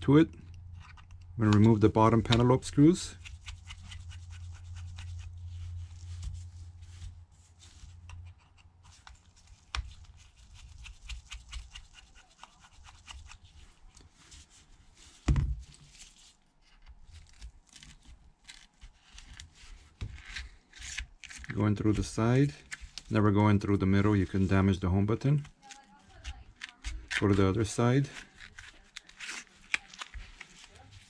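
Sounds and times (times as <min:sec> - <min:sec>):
screwdriver ticks and scrapes: 0:00.5 - 0:01.3, 0:08.1 - 0:08.9.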